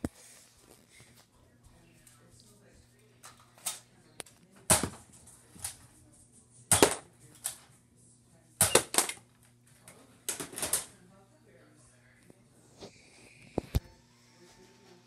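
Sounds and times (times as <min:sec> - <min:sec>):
toy blaster firing darts: 0:06.7 - 0:07.0, 0:08.6 - 0:09.2.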